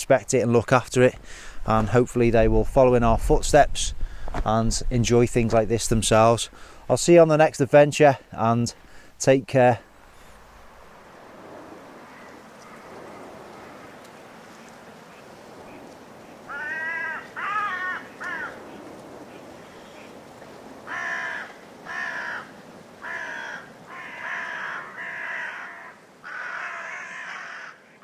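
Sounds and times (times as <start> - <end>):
steady background hiss: 0.0 - 28.0
crow cawing: 11.8 - 14.1, 15.0 - 20.2, 20.8 - 28.0.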